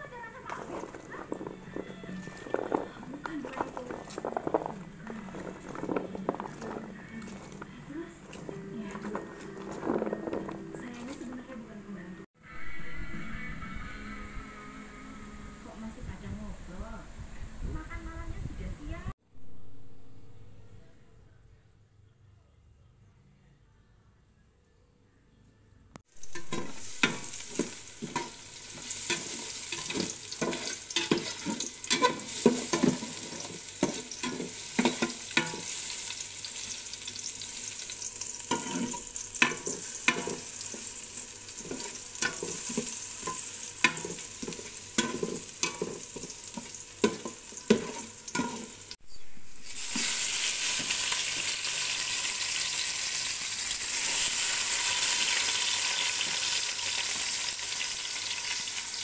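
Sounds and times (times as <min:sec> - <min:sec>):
chicken frying in a pot: 0:00.0 - 0:11.4, 0:26.1 - 0:49.0, 0:49.6 - 0:59.0
garlic sizzling in hot oil: 0:00.0 - 0:11.4, 0:26.1 - 0:59.0
spatula scraping and knocking pot: 0:00.4 - 0:11.5, 0:26.2 - 0:36.1, 0:38.2 - 0:48.9.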